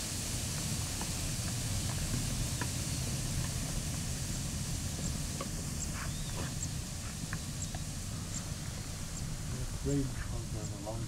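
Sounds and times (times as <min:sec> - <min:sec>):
low rumble with hiss: 0:00.0 - 0:11.0.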